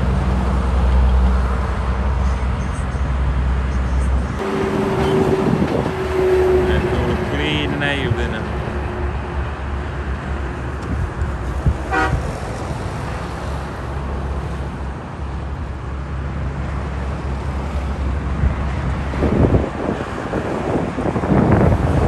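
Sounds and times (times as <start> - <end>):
heavy trucks passing: 0.0 - 22.0
vehicle horn toot: 11.9 - 12.3.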